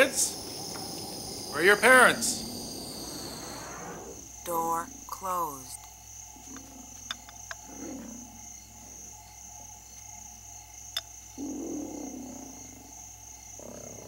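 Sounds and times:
low rumbles: 0.0s - 4.3s
insects chirring: 0.0s - 14.0s.

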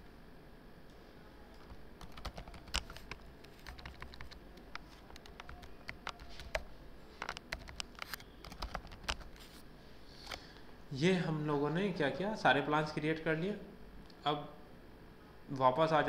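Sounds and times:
typing on computer keyboard: 1.6s - 9.4s.

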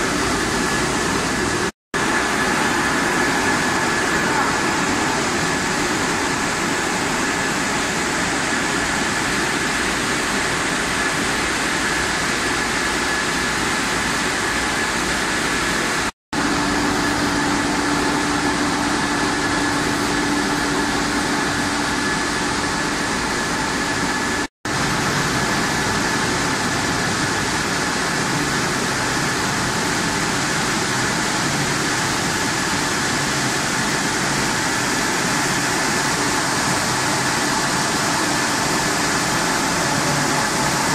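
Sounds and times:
conveyor motors and fans: 0.0s - 40.9s
high machine whine: 0.0s - 40.9s
low machine hum: 16.4s - 32.2s.

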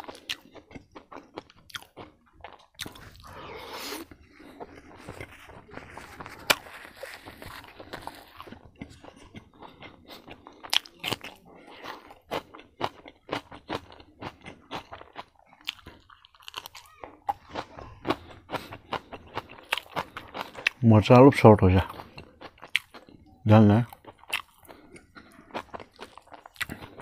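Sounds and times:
person chewing crunchy food: 0.0s - 27.0s.

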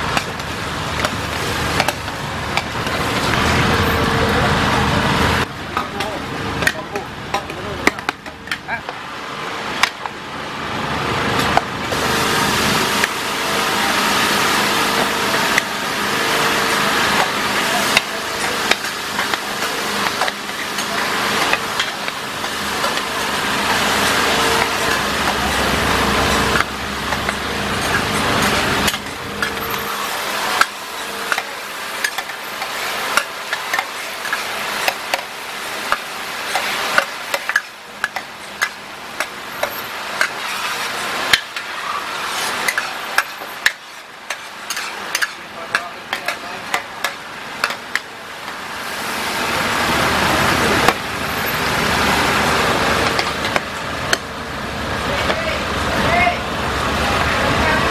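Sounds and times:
oil sizzling in a wok: 0.0s - 3.9s, 9.0s - 55.9s
metal spatula scraping a wok: 35.8s - 48.0s.

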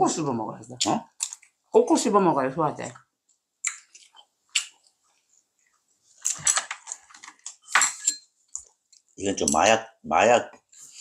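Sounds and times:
chewing and mouth sounds: 3.6s - 7.1s
chopsticks and spoons clicking on dishes: 6.2s - 8.7s, 9.4s - 9.7s.

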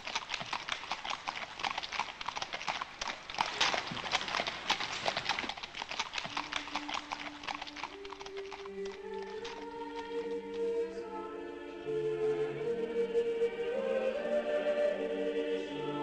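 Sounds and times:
hoofbeats on gravel: 0.0s - 10.3s.

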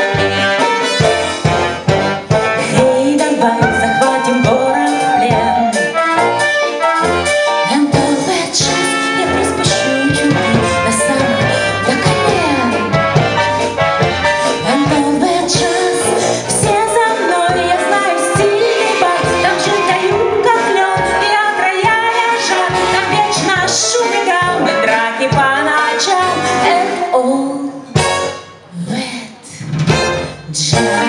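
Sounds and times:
steady drum beat: 0.0s - 6.5s, 8.0s - 24.7s
amplified pop music: 0.0s - 31.0s
woman singing into a microphone: 2.6s - 6.0s, 7.6s - 13.0s, 14.4s - 27.9s, 30.5s - 31.0s.

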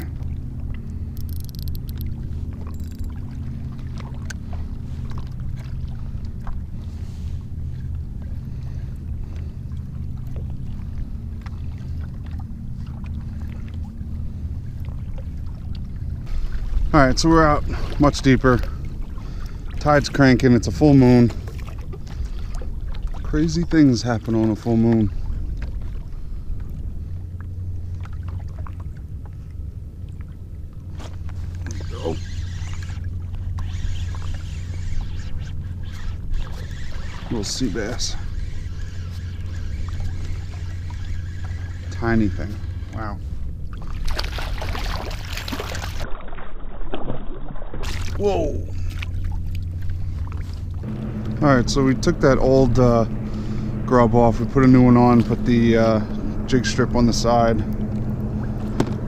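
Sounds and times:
steady low hum: 0.0s - 59.0s
water splashing against kayak hull: 0.0s - 59.0s
small clicks: 1.2s - 3.2s.

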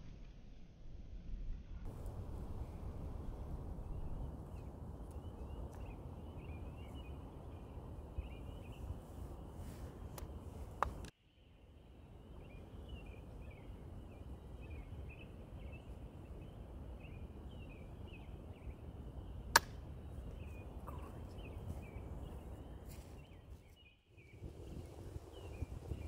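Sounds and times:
low rumble: 0.0s - 7.9s
faint high chirping: 2.5s - 10.7s, 11.3s - 26.0s.

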